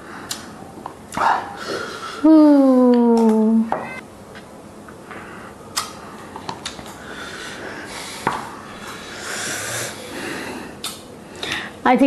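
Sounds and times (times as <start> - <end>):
person sniffing and breathing hard: 7.0 - 10.8.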